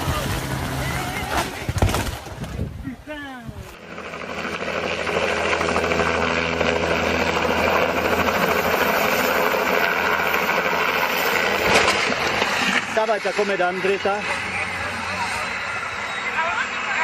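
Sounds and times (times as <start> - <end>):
helicopter engine and rotor: 3.8 - 17.0.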